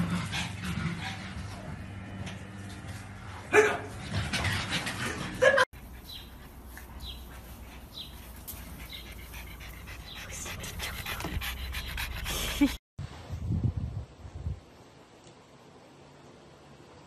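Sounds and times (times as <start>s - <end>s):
dog panting: 5.8s - 12.8s.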